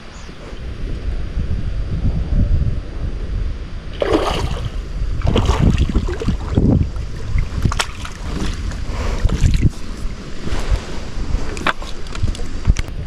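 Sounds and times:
wind buffeting microphone: 0:00.0 - 0:13.0
fish splashing in water: 0:04.0 - 0:08.8.

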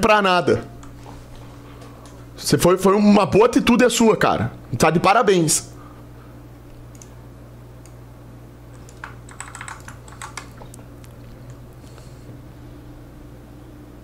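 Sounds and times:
steady low hum: 0:00.0 - 0:14.0
keyboard typing: 0:08.7 - 0:11.6.

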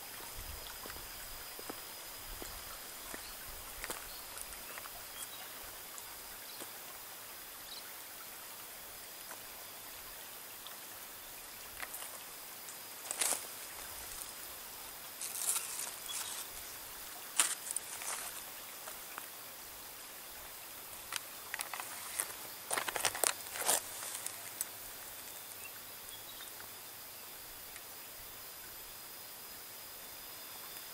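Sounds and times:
leaves rustling and crackling: 0:00.0 - 0:07.0, 0:09.2 - 0:25.5
faint outdoor hiss: 0:00.0 - 0:30.9.

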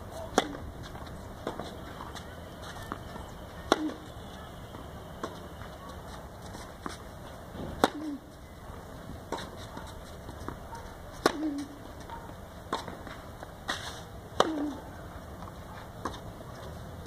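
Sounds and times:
racket hitting tennis ball: 0:00.1 - 0:04.1, 0:06.0 - 0:08.3, 0:09.2 - 0:14.9
ball bouncing on clay court: 0:00.1 - 0:13.5.

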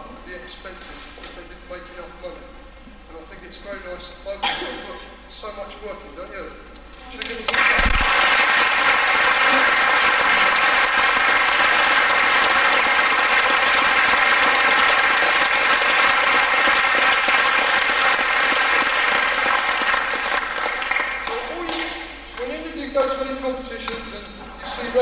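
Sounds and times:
audience applauding: 0:07.2 - 0:22.5.

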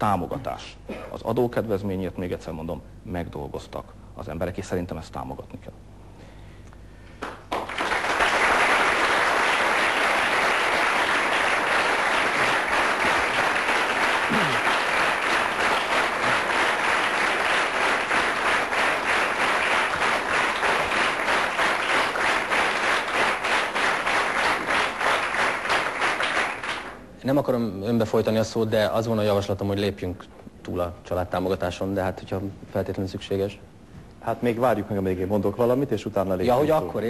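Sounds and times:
audience applauding: 0:07.2 - 0:27.0.

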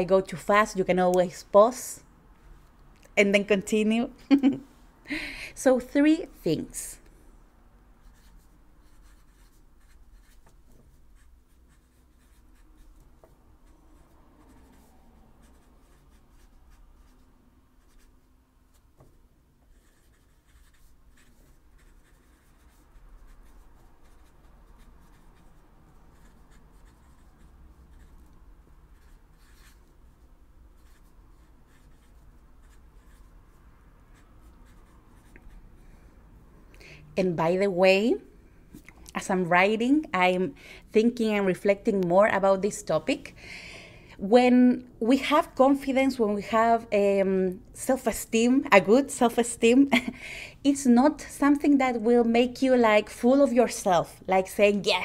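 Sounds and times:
pen scratching on paper: 0:08.0 - 0:17.2, 0:17.8 - 0:28.3, 0:28.9 - 0:35.6.

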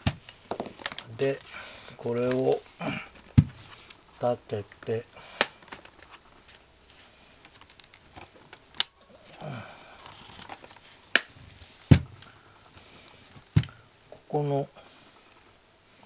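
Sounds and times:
plastic laptop case handled: 0:04.7 - 0:06.6, 0:10.0 - 0:12.4.

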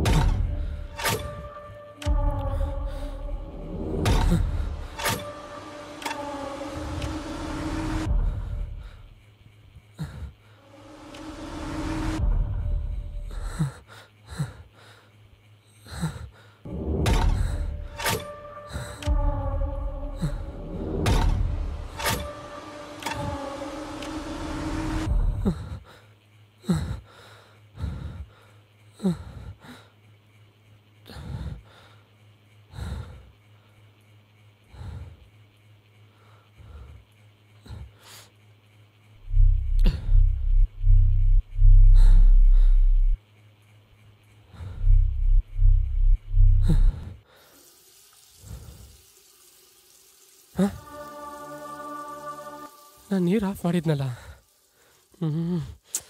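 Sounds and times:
low rumbling drone: 0:00.0 - 0:14.6, 0:16.7 - 0:26.0, 0:38.6 - 0:47.2, 0:49.8 - 0:55.7
faint steady hum: 0:00.0 - 0:56.0.

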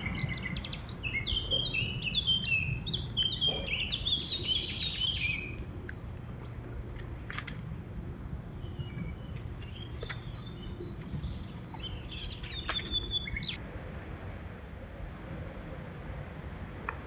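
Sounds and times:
songbirds chirping: 0:00.0 - 0:13.6.

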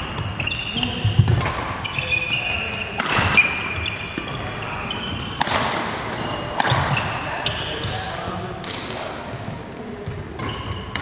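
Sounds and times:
sports shoes squeaking: 0:00.0 - 0:08.4, 0:09.9 - 0:11.0
rackets hitting shuttlecocks: 0:00.1 - 0:07.8, 0:10.3 - 0:11.0.

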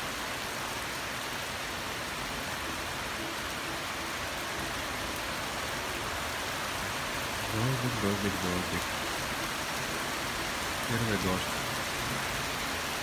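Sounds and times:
rain on pavement: 0:00.0 - 0:13.0.

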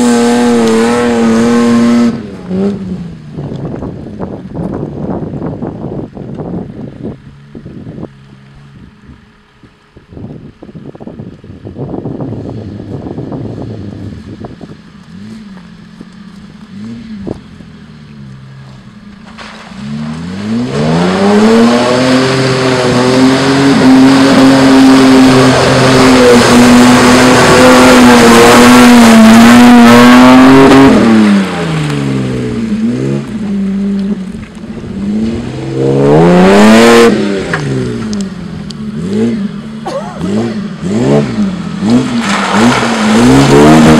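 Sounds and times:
truck engine revving: 0:00.0 - 0:03.2, 0:13.4 - 0:43.9
mud and water splashing: 0:14.2 - 0:43.9.

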